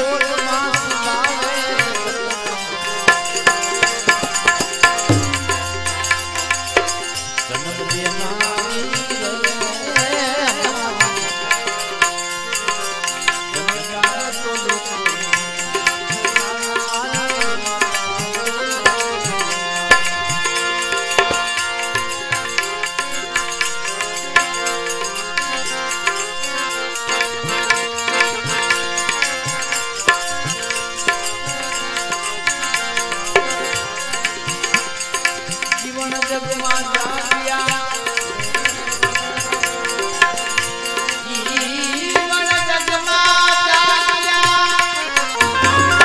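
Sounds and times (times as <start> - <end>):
tabla beating: 0.0 - 46.0
melodic instrument playing a tune: 1.2 - 10.8, 45.2 - 46.0.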